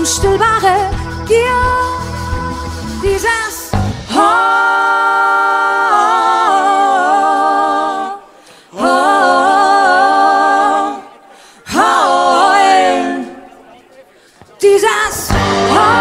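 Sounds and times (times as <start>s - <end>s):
voices singing a cappella: 0.0s - 13.7s, 14.6s - 16.0s.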